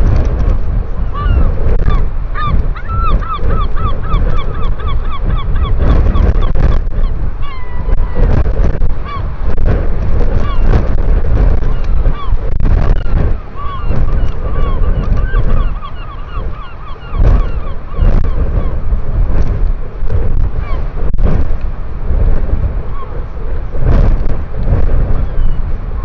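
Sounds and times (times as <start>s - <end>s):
wind buffeting microphone: 0.0s - 26.0s
bird calls rising and falling: 1.0s - 8.2s, 11.6s - 18.8s.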